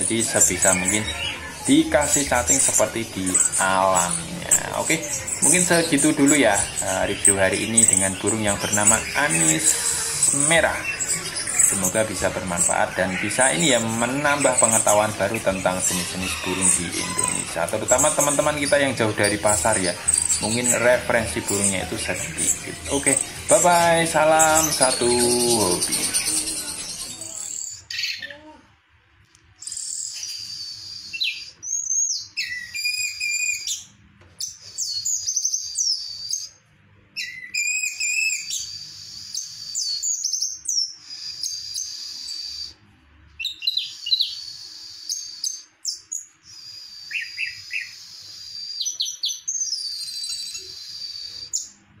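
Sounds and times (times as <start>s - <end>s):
thrush singing: 0.0s - 27.4s.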